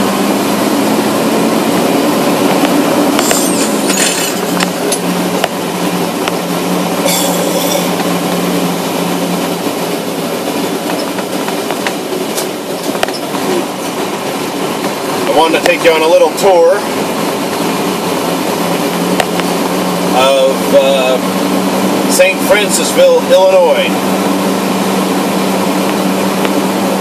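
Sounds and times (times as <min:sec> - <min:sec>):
low engine hum: 0:00.0 - 0:27.0
road and tyre noise: 0:00.0 - 0:27.0
vehicle clicks and rattles: 0:02.3 - 0:08.4, 0:09.6 - 0:16.5.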